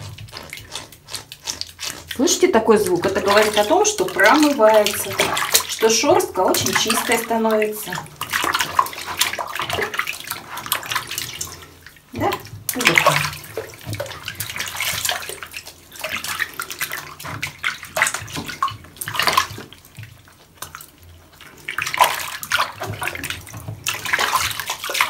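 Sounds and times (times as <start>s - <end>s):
hands rubbing wet fur: 0.0s - 11.9s
water splashing in plastic basin: 0.0s - 25.0s.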